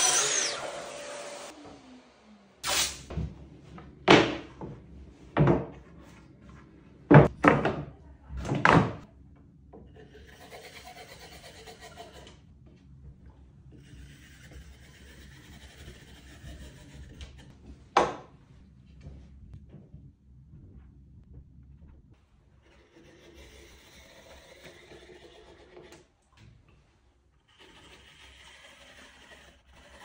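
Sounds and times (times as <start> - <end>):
boards knocked on a workbench: 4.1 - 4.8, 5.4 - 5.8, 7.1 - 9.0, 18.0 - 18.3.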